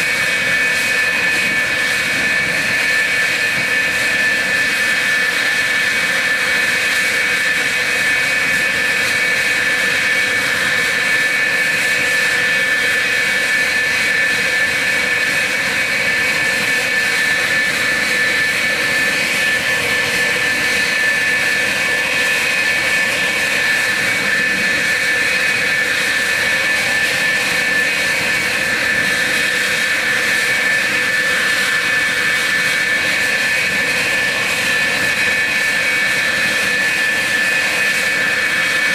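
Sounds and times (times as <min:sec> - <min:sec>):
high jet whine: 0:00.0 - 0:38.9
jet engines idling roar: 0:00.0 - 0:38.9.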